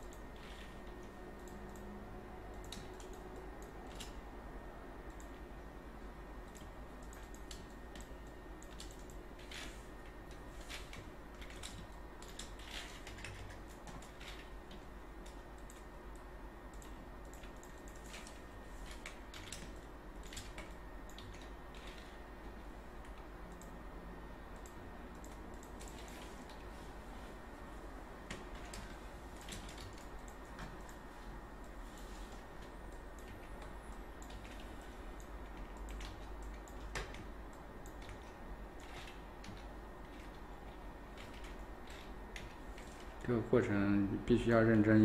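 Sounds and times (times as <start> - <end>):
keyboard and mouse clicks: 0.0 - 1.9, 2.5 - 4.2, 6.4 - 9.8, 10.6 - 22.2, 23.0 - 23.7, 24.5 - 26.7, 28.3 - 31.0, 31.6 - 43.3
low hiss and hum: 0.0 - 45.0.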